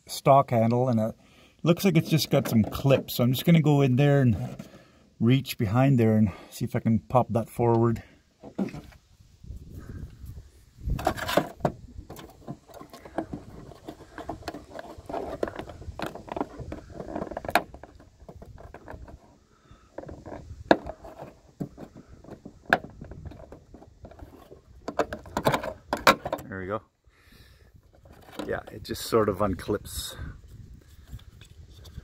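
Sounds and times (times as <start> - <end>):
rustling handling noise: 10.8 - 26.4
plastic clicks and knocks: 11.0 - 26.5.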